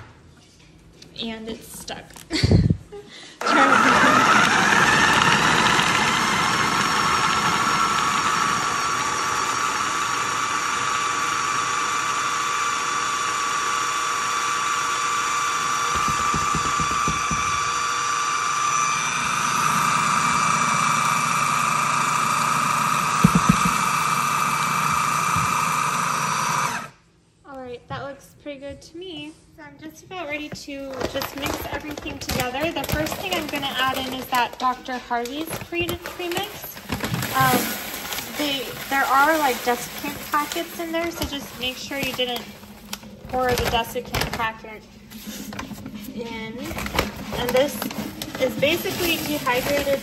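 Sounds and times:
food processor motor whining: 3.4s - 27.0s, 31.0s - 50.0s
blade grinding seeds: 35.4s - 43.5s, 46.8s - 50.0s.

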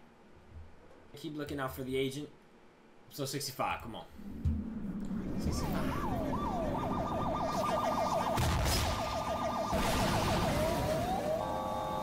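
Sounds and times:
police siren: 5.1s - 12.0s.

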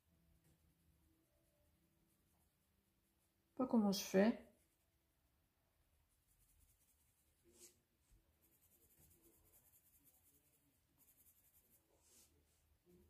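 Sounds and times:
pencil scratching on paper: 6.1s - 12.3s.

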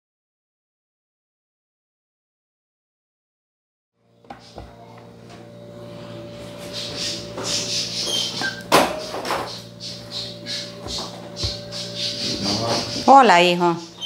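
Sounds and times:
steady low hum: 4.0s - 14.0s.

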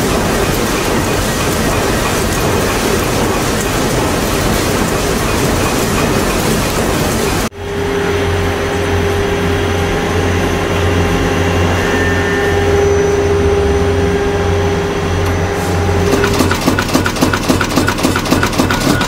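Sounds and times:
machine motor and flywheel hum: 0.0s - 19.0s
rapid clatter of forming strokes: 16.0s - 19.0s.

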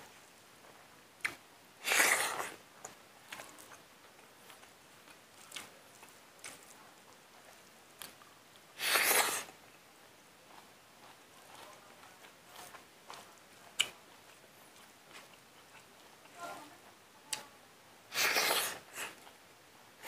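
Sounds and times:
man chewing food: 0.0s - 16.4s, 18.1s - 19.4s
loud sharp sniff: 8.8s - 9.5s, 18.1s - 19.2s.

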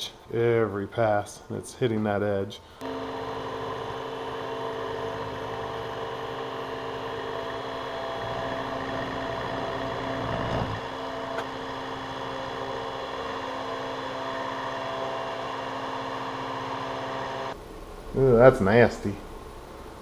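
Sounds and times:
milling machine cutting metal: 2.8s - 17.6s.

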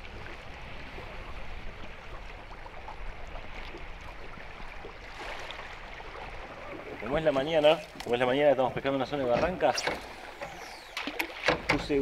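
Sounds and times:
river water lapping against hull: 0.0s - 12.0s.

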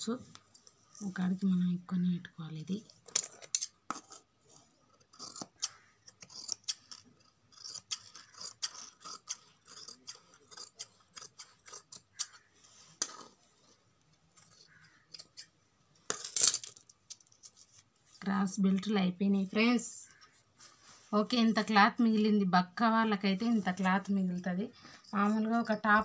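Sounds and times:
fabric rustling: 20.2s - 21.7s.

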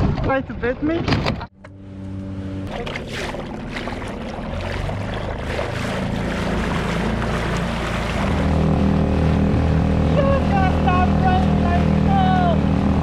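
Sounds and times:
outboard motor running: 1.6s - 13.0s
water rushing past hull: 2.6s - 13.0s.

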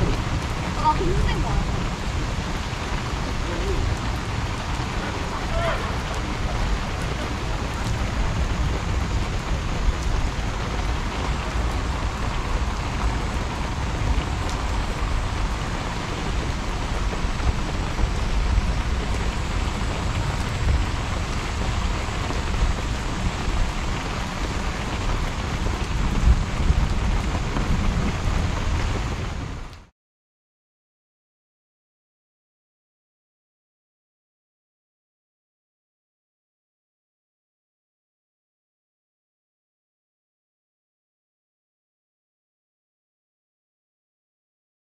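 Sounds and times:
heavy rain pouring on street: 0.0s - 29.9s.

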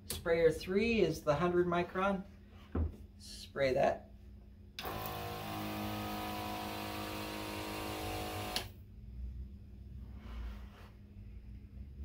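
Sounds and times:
sprayer motor whine: 4.8s - 8.7s.

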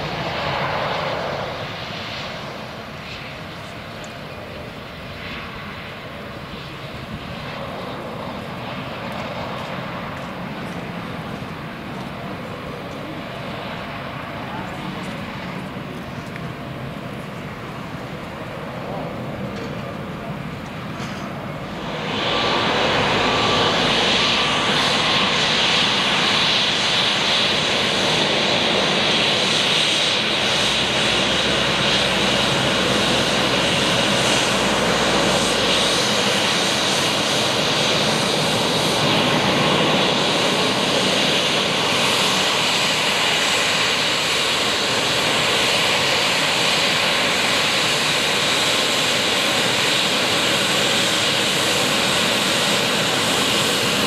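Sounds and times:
high-pitched jet engine hiss: 20.7s - 54.0s.

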